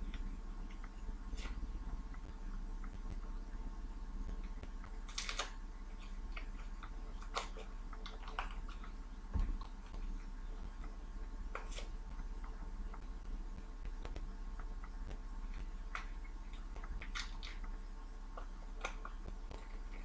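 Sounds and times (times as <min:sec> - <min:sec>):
steady low hum: 0:00.0 - 0:20.0
paper sachets crinkling: 0:05.0 - 0:06.5.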